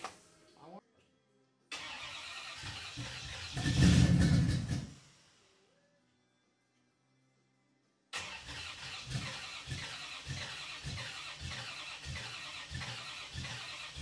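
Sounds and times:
starter cranking car engine: 0:01.8 - 0:05.0, 0:08.2 - 0:14.0.

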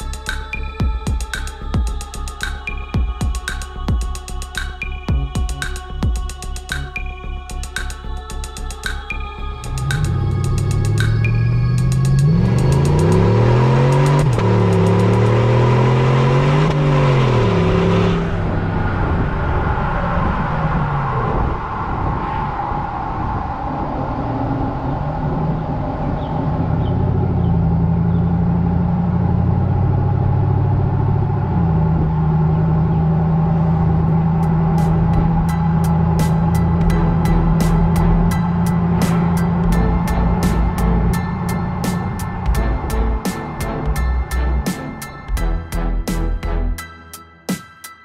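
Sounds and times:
truck engine rumbling: 0:09.0 - 0:47.1
tyre and road noise: 0:09.6 - 0:46.8.

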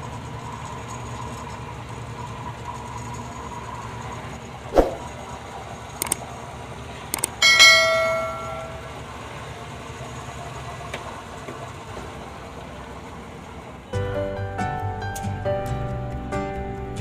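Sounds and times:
metallic ring: 0:07.4 - 0:09.0
music: 0:13.9 - 0:17.0.

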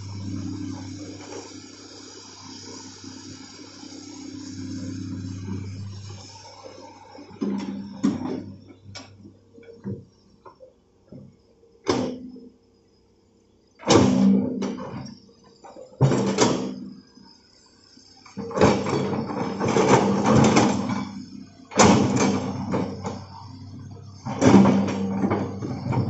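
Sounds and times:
excavator engine and hydraulics: 0:00.0 - 0:12.4, 0:13.8 - 0:26.0.

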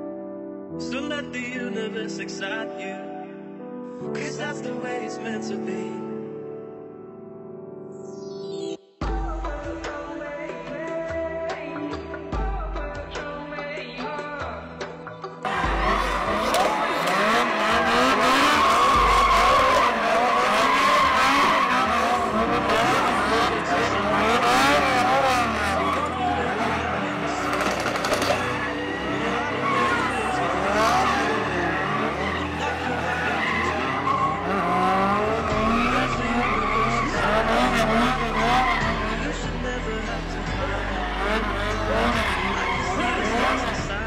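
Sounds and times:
car engine revving: 0:15.5 - 0:44.0
car tyres squealing: 0:15.5 - 0:44.0.

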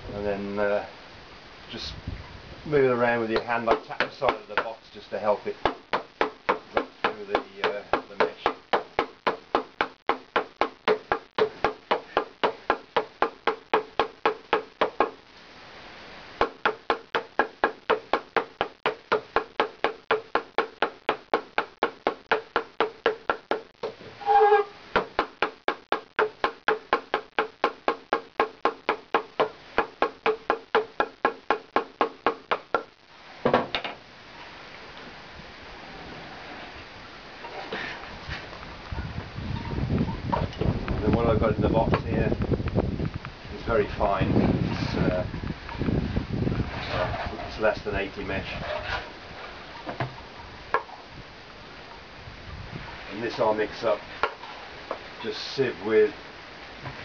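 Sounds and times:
hammer tapping wooden box: 0:05.6 - 0:15.2, 0:16.4 - 0:24.0, 0:25.0 - 0:32.9.

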